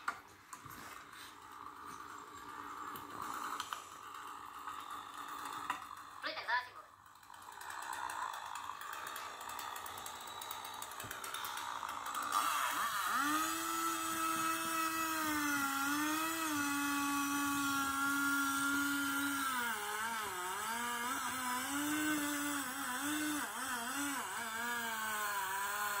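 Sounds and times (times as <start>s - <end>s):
motor whining: 0.0s - 26.0s.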